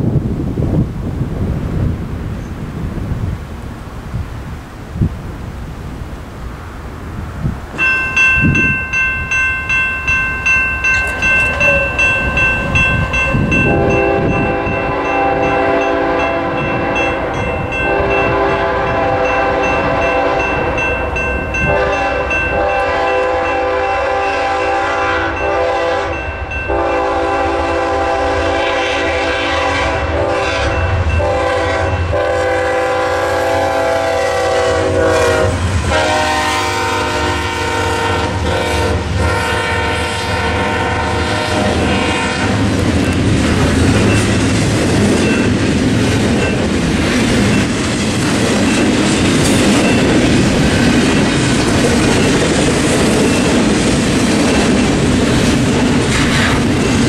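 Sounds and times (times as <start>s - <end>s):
crossing bell ringing: 7.7s - 27.9s, 30.5s - 33.1s, 40.6s - 57.0s
locomotive air horn blasts: 10.9s - 20.7s, 21.5s - 42.6s.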